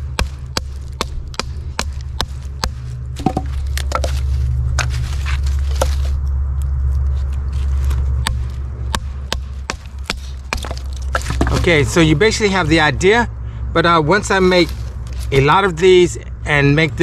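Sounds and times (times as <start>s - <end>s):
low rumble: 0.0s - 15.4s
knife cracking wood: 0.2s - 11.7s.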